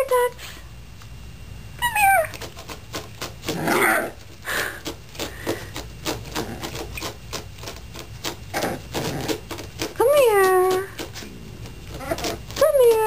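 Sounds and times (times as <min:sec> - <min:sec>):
dog whining: 0:01.8 - 0:02.5, 0:03.5 - 0:04.2, 0:11.2 - 0:13.0
dog scratching at carpet: 0:02.3 - 0:13.0.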